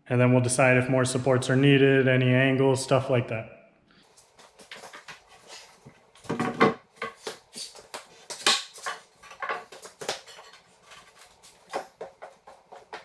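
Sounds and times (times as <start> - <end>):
wooden knocks and clunks on concrete: 6.2 - 7.5, 8.2 - 13.0.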